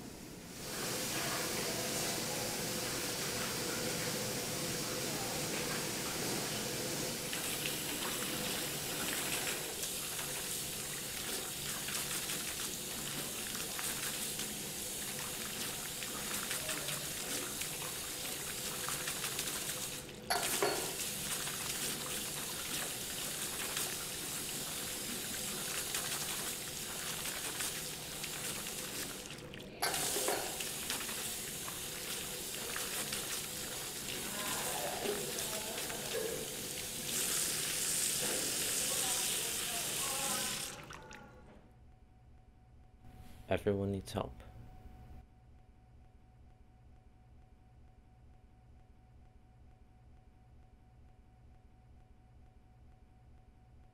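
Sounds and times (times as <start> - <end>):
tap water running into sink: 0.6 - 41.2.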